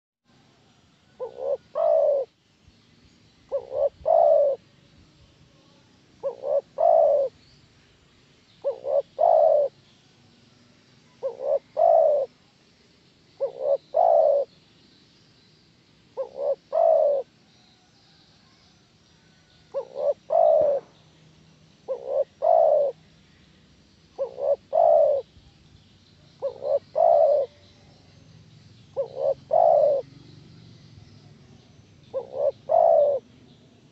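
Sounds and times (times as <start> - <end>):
dove cooing: 1.1 - 2.3, 3.5 - 4.6, 6.2 - 7.4, 8.6 - 9.8, 11.1 - 12.3, 13.4 - 14.5, 16.2 - 17.3, 19.7 - 20.9, 21.8 - 23.0, 24.2 - 25.3, 26.4 - 27.6, 28.9 - 30.1, 32.1 - 33.3.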